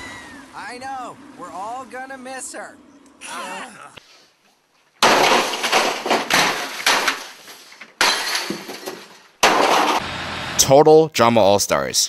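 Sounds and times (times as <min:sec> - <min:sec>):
clattering and breaking: 0:05.0 - 0:10.0
computer being smashed: 0:05.0 - 0:10.0.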